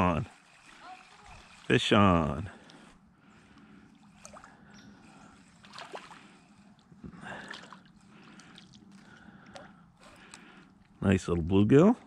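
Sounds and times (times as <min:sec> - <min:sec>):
fish splashing in water: 0:04.0 - 0:06.6.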